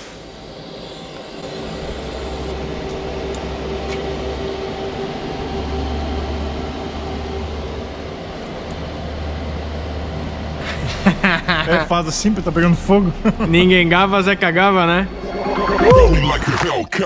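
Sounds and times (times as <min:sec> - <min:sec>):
hiss: 0:00.0 - 0:03.6
welder humming: 0:00.0 - 0:05.7.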